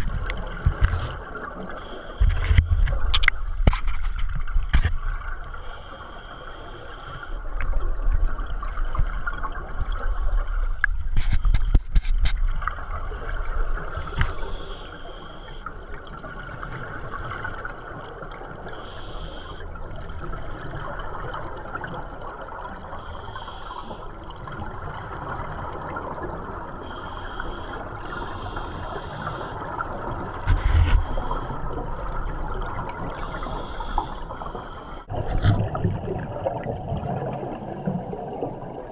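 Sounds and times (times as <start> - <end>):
steady watery hiss: 0.0 - 3.4, 5.4 - 7.5, 13.8 - 15.8, 17.6 - 19.8, 22.8 - 24.4, 26.5 - 35.2
underwater exhaled air bubbling: 12.4 - 38.9.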